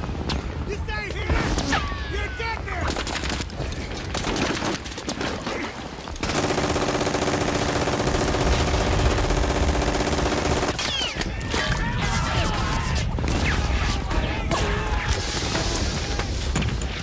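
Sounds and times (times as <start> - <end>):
machine gun burst: 6.2 - 11.2.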